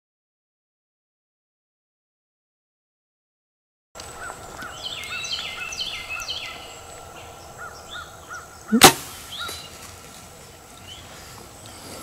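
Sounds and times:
soft bird chirps: 4.0 - 9.9, 10.7 - 12.0
high downslurred bird calls: 4.0 - 12.0
sharp loud crack: 8.7 - 9.3.

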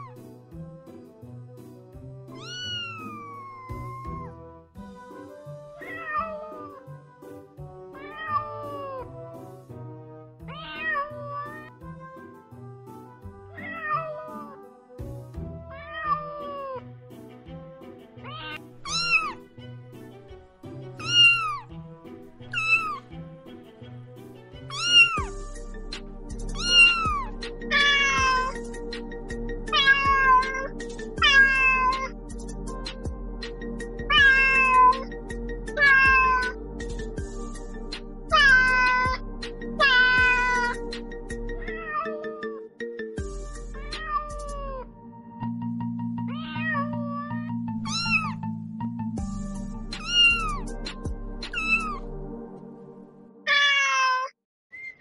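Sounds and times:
background music with steady beat: 0.0 - 53.3
cat meowing: 2.3 - 4.4, 5.8 - 6.9, 7.9 - 9.1, 10.4 - 12.1, 13.5 - 14.6, 15.6 - 16.8, 18.2 - 19.5, 21.0 - 21.7, 22.4 - 23.0, 24.7 - 25.3, 26.5 - 28.6, 29.7 - 32.2, 34.1 - 35.1, 35.7 - 36.7, 38.3 - 39.2, 39.8 - 40.8, 41.6 - 42.6, 43.8 - 44.9, 46.3 - 48.4, 50.0 - 50.7, 51.5 - 52.0, 53.5 - 54.4.

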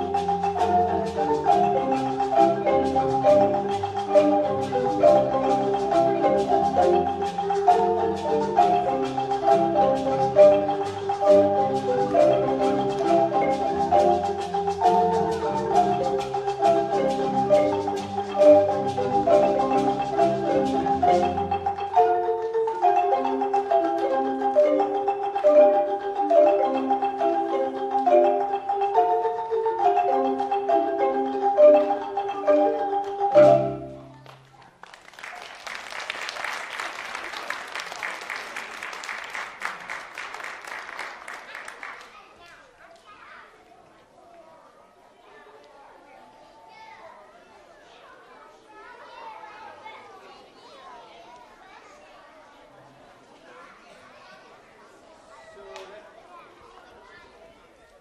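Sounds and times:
marimbas playing: 0.0 - 34.4.

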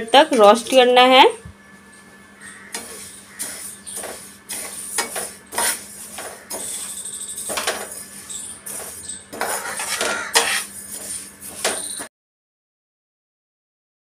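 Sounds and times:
spoon scraping pan: 2.8 - 12.1.

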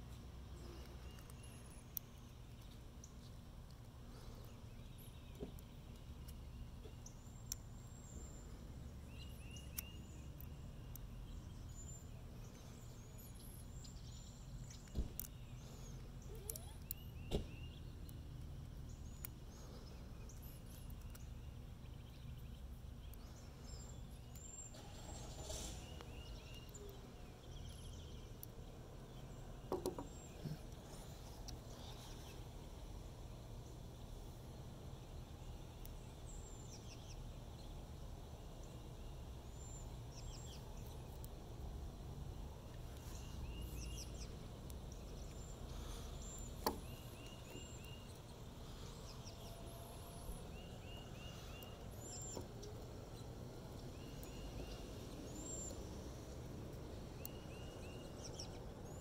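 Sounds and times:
bird chirps: 4.1 - 18.2, 42.9 - 56.0.

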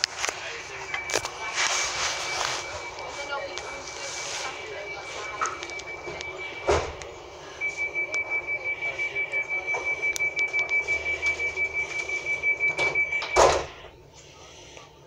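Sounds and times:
rapid high-pitched beeping: 0.3 - 13.9
sliding doors shutting thud: 6.0 - 7.0, 12.7 - 13.8.

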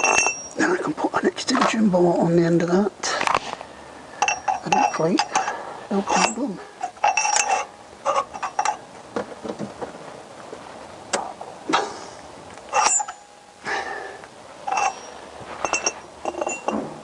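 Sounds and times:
steel hand tools clinking: 0.0 - 0.6, 4.2 - 8.8, 12.7 - 13.3, 14.6 - 16.8.

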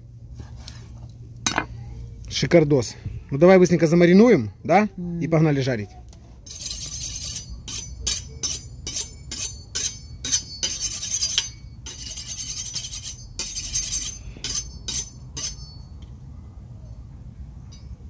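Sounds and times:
knife scraping on honing steel: 6.4 - 15.9.

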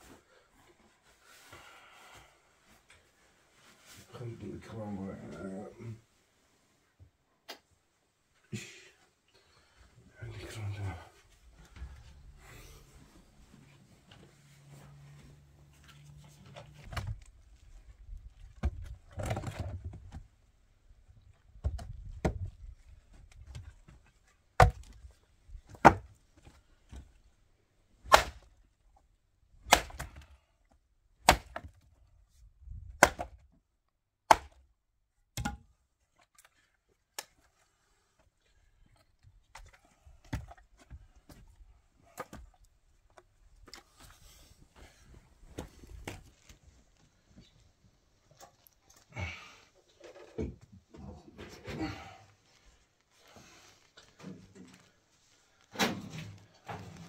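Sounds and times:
rustling and handling noise: 0.0 - 4.4, 10.4 - 27.5, 35.8 - 49.1, 49.7 - 57.0.

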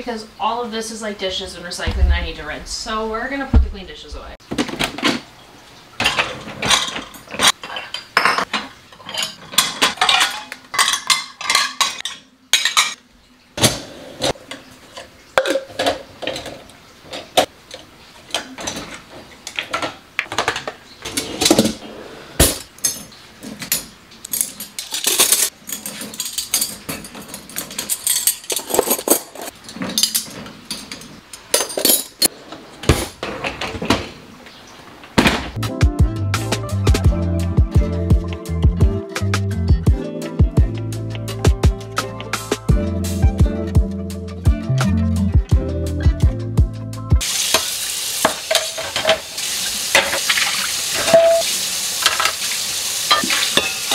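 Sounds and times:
dishes and cutlery clinking: 6.0 - 13.0, 14.2 - 21.8, 22.4 - 34.0, 47.5 - 49.3, 51.0 - 52.4, 53.1 - 53.9.

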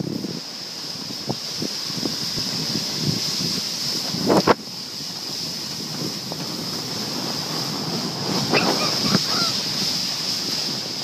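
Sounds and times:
snow tube sliding on snow: 0.0 - 11.0
wind on microphone: 0.0 - 11.0
person crying out: 8.5 - 9.6.

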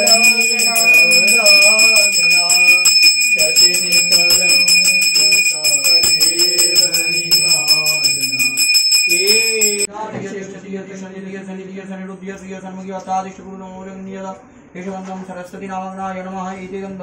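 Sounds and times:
hand bell rung rapidly: 0.0 - 9.9
wavering melodic voice: 0.0 - 9.9.

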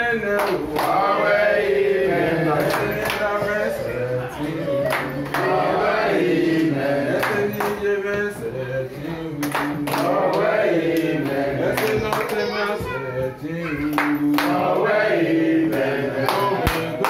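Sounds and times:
group of people singing: 0.0 - 17.0
hand claps: 0.3 - 1.2, 2.5 - 3.6, 4.4 - 5.8, 6.5 - 8.5, 9.4 - 12.9, 13.9 - 14.9, 15.7 - 17.0.

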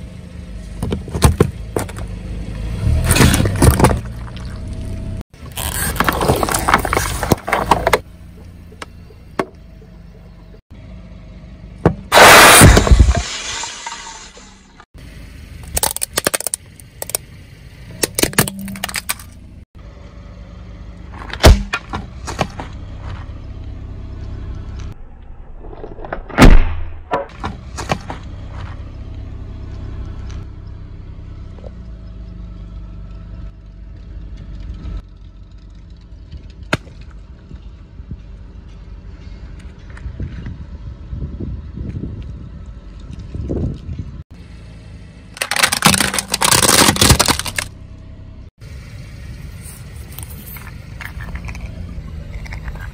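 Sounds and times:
car engine running low: 0.0 - 26.2, 27.3 - 52.9
objects cracking under a tyre: 3.0 - 4.7, 5.4 - 9.0, 15.6 - 17.3, 17.9 - 19.4, 45.3 - 47.8, 50.1 - 52.9.

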